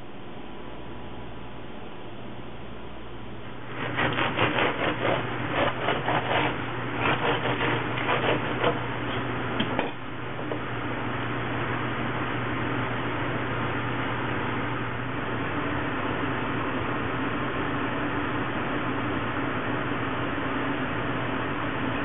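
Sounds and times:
steady low hum: 0.0 - 22.0
bread knife sawing through crust: 3.7 - 9.3.

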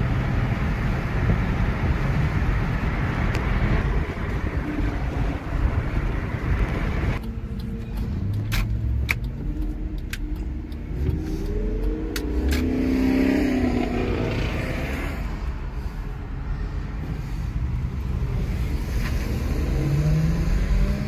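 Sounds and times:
car engine accelerating: 0.0 - 21.0
car road and wind noise: 0.0 - 21.0
sharp clicks: 6.7 - 13.0.

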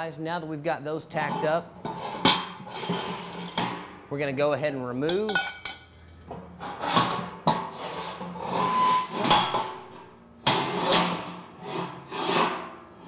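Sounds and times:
metal rods scraping on steel grill: 1.2 - 3.7, 6.6 - 9.5.

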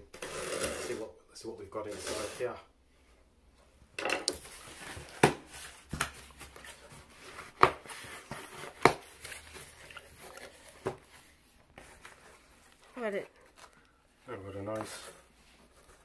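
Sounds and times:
cardboard flaps rustling and scraping: 4.4 - 13.6.

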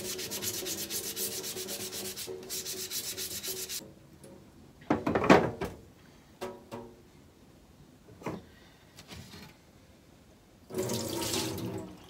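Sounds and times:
scouring pad scrubbing ceramic: 0.0 - 3.8.

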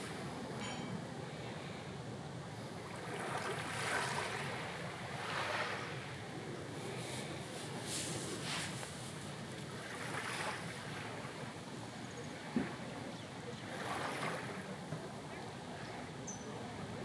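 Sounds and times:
small waves washing on shore: 0.0 - 17.0.

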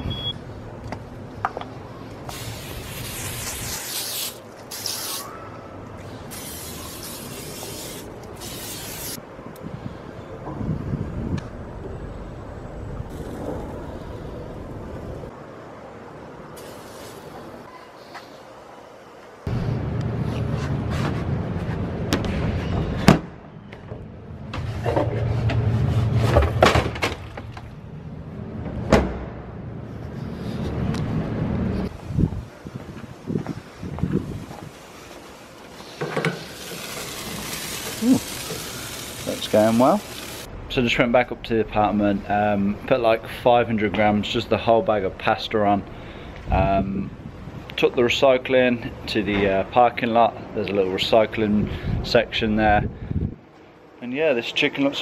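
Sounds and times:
aerosol spray hissing: 2.3 - 5.3, 6.3 - 9.2, 16.6 - 17.5, 34.8 - 40.5
steady low rumble: 19.4 - 22.6, 27.6 - 34.7.

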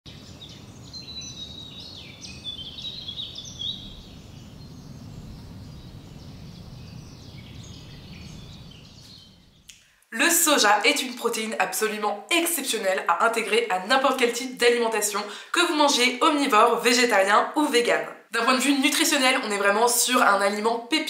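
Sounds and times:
small birds chirping: 0.1 - 9.8
low background rumble: 3.5 - 9.7.

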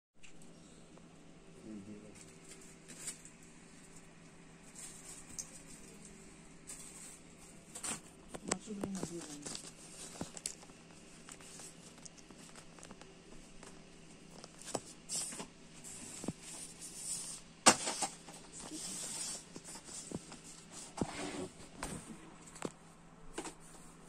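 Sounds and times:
faint steady hum: 0.2 - 24.0
fabric ribbon rustling: 2.3 - 13.6.

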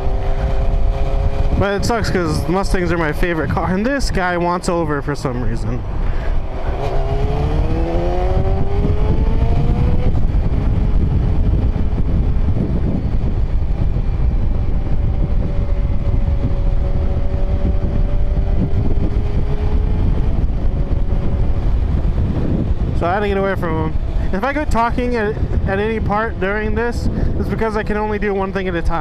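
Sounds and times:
motorcycle engine accelerating: 0.0 - 4.6, 5.3 - 27.9
wind rumble on microphone: 0.0 - 29.0.

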